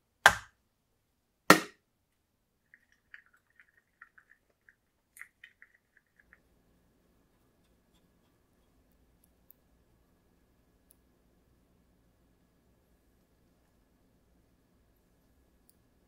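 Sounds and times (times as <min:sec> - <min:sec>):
stick stirring in plastic cup: 0:02.7 - 0:06.5.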